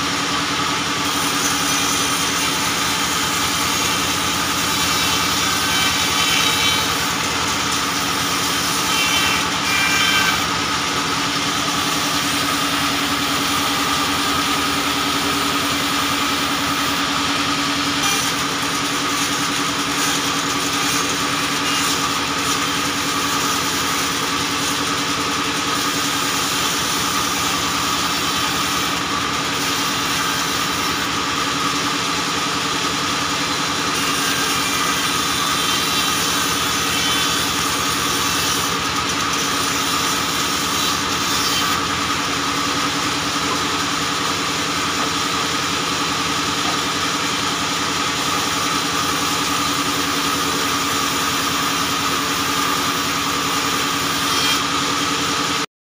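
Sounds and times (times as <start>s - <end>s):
band saw cutting logs: 0.0s - 55.7s.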